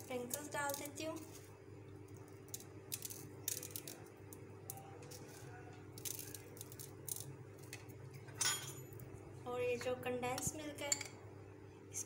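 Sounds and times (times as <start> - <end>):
low background hum: 0.0 - 12.0
sprinkles ticking on tray: 2.0 - 7.7.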